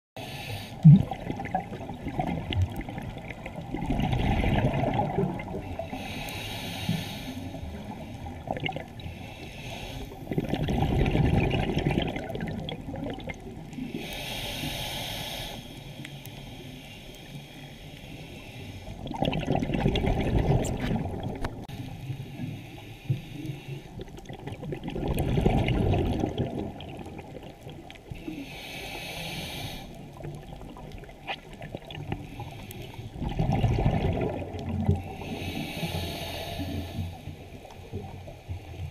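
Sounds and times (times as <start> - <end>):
hissing inhalations: 0.2 - 0.9, 5.8 - 10.4, 13.8 - 19.0, 28.2 - 30.2, 35.0 - 37.6
bubbly gurgling exhalations: 0.8 - 6.0, 7.6 - 9.0, 10.2 - 14.0, 19.0 - 21.7, 23.9 - 28.1, 30.2 - 32.2, 33.1 - 36.0.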